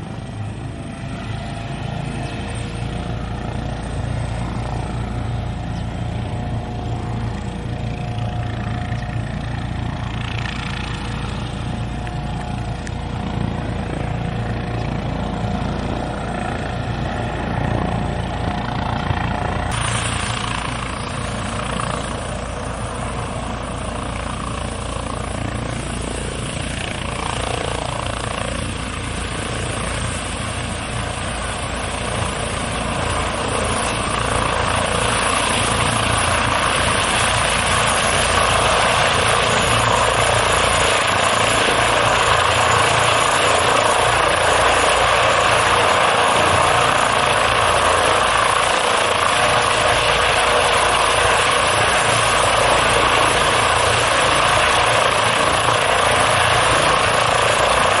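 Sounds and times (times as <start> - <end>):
helicopter engines and rotors: 0.0 - 58.0.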